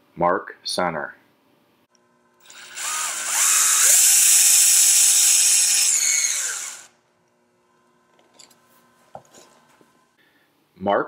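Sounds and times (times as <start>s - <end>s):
cordless drill motor whining: 2.4s - 6.9s.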